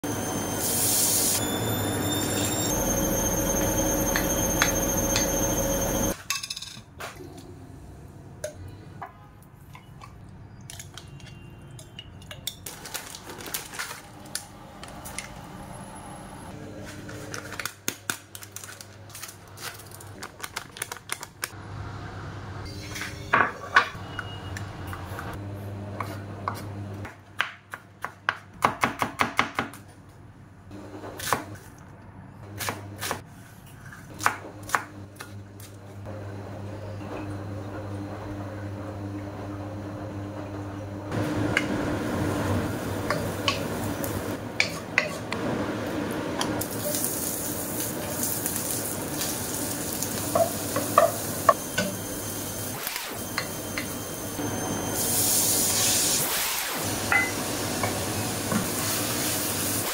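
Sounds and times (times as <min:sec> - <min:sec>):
bowls and utensils clinking: 0:08.4 - 0:12.7, 0:57.1 - 0:58.0
pot sizzling: 0:41.1 - 0:59.9.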